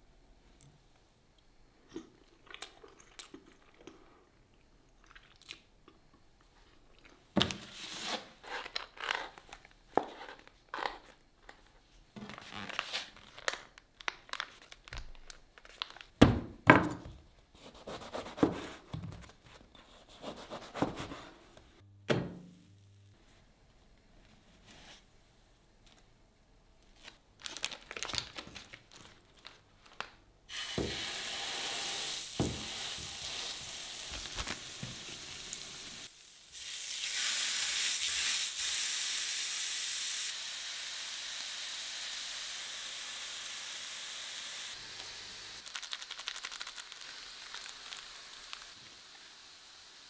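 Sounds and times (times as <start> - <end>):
burger patties sizzling: 30.5 - 50.0.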